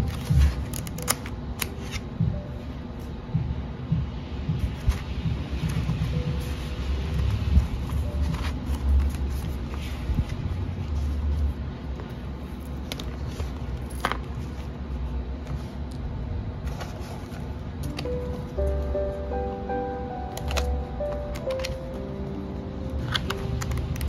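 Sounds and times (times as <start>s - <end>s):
background music with held notes: 0.0s - 11.3s, 17.7s - 24.0s
paper pages riffling: 7.8s - 11.6s.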